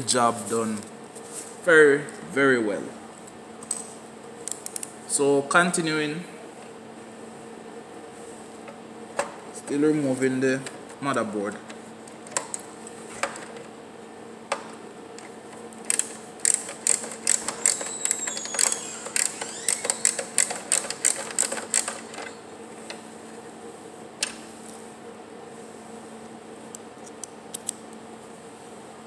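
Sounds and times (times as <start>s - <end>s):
ratcheting screwdriver clicking: 15.2s - 22.4s.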